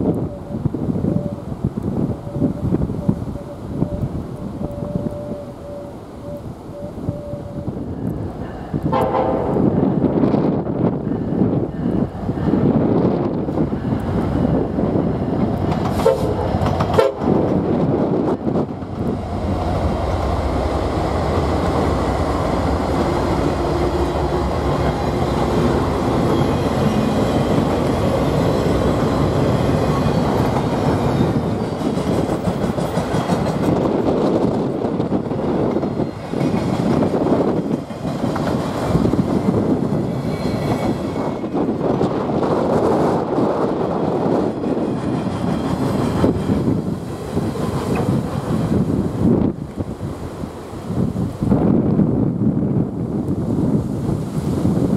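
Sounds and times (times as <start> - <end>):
diesel locomotives passing: 0.0 - 54.9
train wheels clattering over rail joints: 15.4 - 17.6, 26.0 - 43.0, 44.4 - 48.7.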